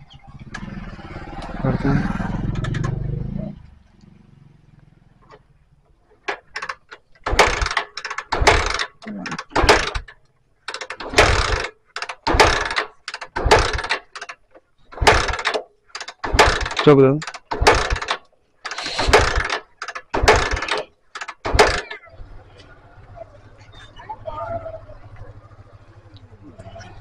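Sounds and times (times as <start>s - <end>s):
motorcycle engine cranking: 0.0s - 27.0s
kick-starter ratcheting clatter: 0.3s - 3.2s, 6.2s - 22.1s.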